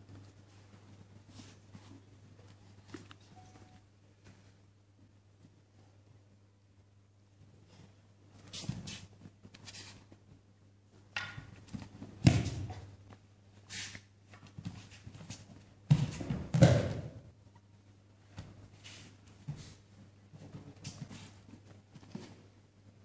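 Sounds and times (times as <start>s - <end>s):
bare feet stamping on mat: 15.9s - 17.2s
body landing on padded mat: 15.9s - 17.2s.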